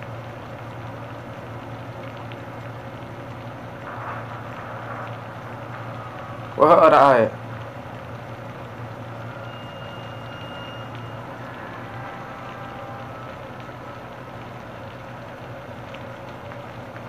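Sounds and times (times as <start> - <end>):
low ambient hum: 0.0 - 17.0
faint thin high tones: 9.2 - 13.3.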